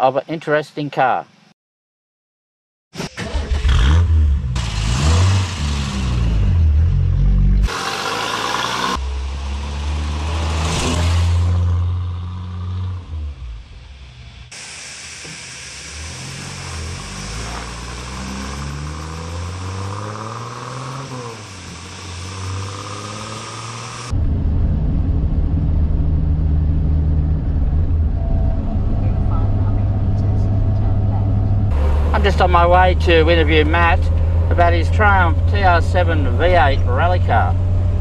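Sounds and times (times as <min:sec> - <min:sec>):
car engine starting and revving: 0:03.0 - 0:14.6, 0:15.9 - 0:38.0
car driving off: 0:03.1 - 0:14.5, 0:15.8 - 0:38.0.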